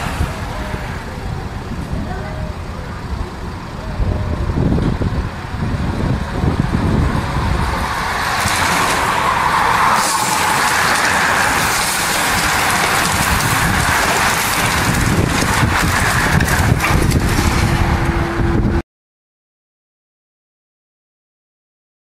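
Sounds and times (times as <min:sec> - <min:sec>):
wind on microphone: 0:00.0 - 0:18.8
bicycles riding past: 0:05.8 - 0:16.8.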